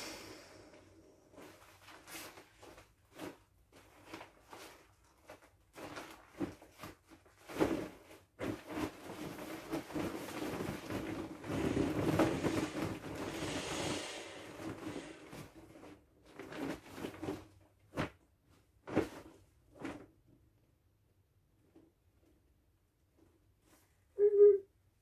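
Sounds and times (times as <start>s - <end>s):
vinyl rustling: 1.2s - 13.5s.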